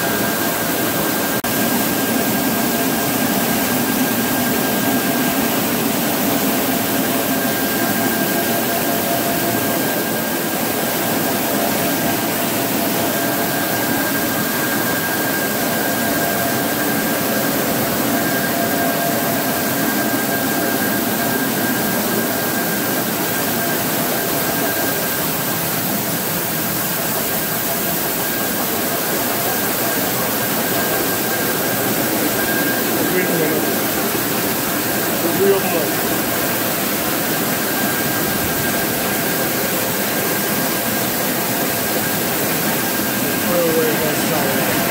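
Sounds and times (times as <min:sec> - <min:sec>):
steady high whine: 0:00.0 - 0:44.9
mills and fans rushing: 0:29.0 - 0:41.1, 0:41.7 - 0:44.9.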